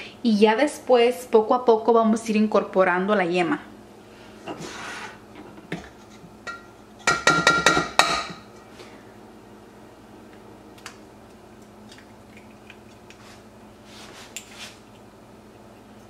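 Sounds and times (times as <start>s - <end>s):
egg tapping on metal bowl: 6.4s - 8.4s.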